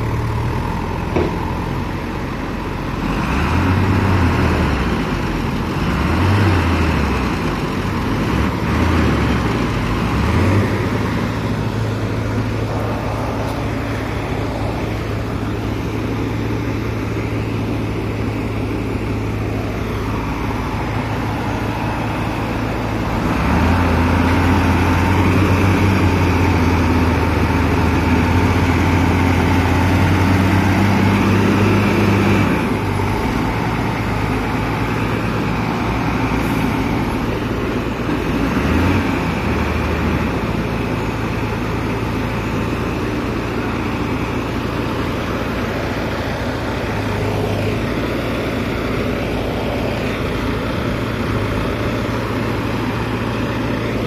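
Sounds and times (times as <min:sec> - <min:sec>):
diesel truck engine revving: 0:00.0 - 0:54.0.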